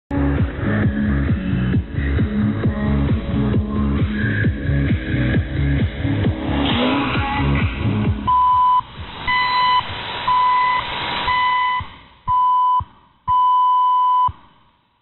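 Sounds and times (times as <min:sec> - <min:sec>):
radio music: 0:02.7 - 0:11.0
high-pitched time signal pips: 0:08.3 - 0:12.7
shortwave hiss: 0:08.8 - 0:11.3.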